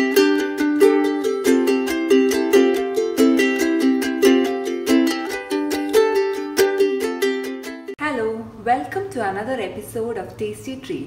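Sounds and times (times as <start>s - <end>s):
plucked string tune: 0.0s - 8.0s.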